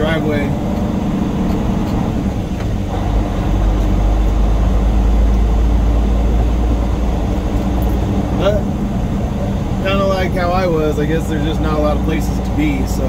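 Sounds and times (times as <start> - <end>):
diesel truck engine rumble: 0.0 - 13.0.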